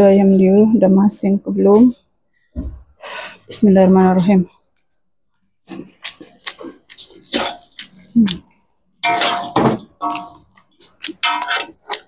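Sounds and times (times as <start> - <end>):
metal utensil scraping a wok: 9.0 - 10.5, 11.1 - 12.0.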